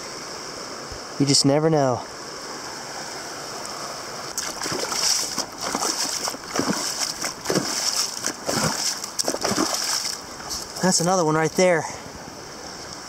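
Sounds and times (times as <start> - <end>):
creek rushing: 0.0 - 13.0
boots walking on rock and leaves: 4.4 - 11.1.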